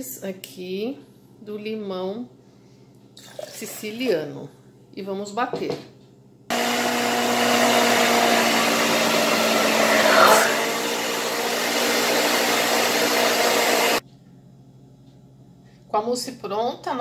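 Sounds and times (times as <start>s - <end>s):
blender motor running: 6.5s - 14.0s.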